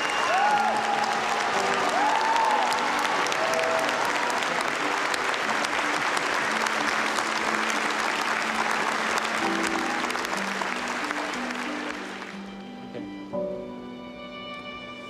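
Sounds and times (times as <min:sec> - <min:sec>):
audience applauding: 0:00.0 - 0:12.7
soft music of low notes: 0:00.1 - 0:15.0.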